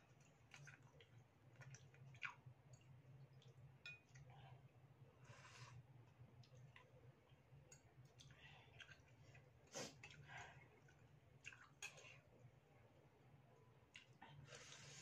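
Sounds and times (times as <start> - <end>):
low steady hum: 0.0 - 15.0
chewing: 0.1 - 3.6, 8.1 - 12.3, 13.9 - 14.8.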